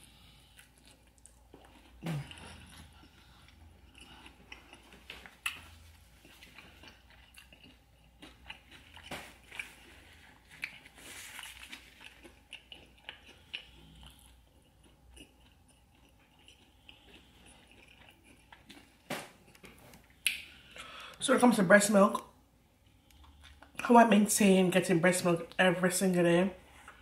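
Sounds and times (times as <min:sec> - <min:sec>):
chewing with crunching: 0:00.0 - 0:21.2, 0:22.8 - 0:23.9
paper napkin rustling: 0:10.8 - 0:12.0.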